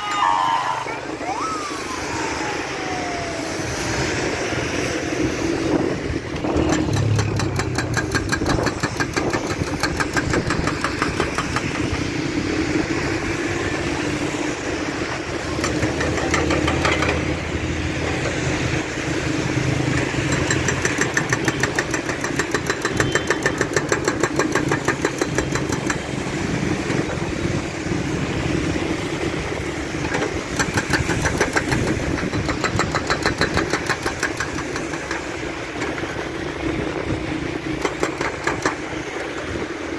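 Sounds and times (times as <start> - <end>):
diesel engine running: 0.8 - 39.9
hydraulic breaker hammer pounding: 6.3 - 12.0, 15.5 - 18.7, 19.8 - 27.0, 30.0 - 36.2, 37.6 - 39.4.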